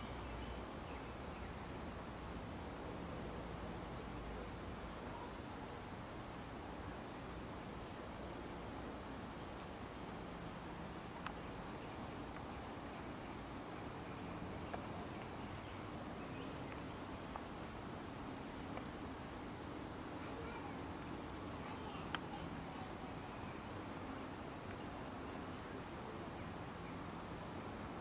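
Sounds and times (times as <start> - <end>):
insect double chirp: 7.5 - 15.6, 16.5 - 20.0
faint clicks: 11.2 - 12.5, 22.0 - 22.3.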